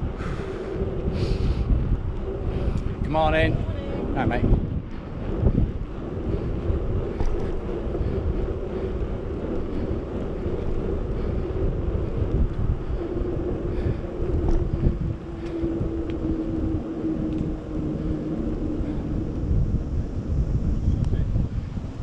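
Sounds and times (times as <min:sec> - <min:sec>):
bicycle rolling noise: 0:00.0 - 0:22.0
steady hum: 0:00.0 - 0:22.0
wind buffeting microphone: 0:00.0 - 0:22.0.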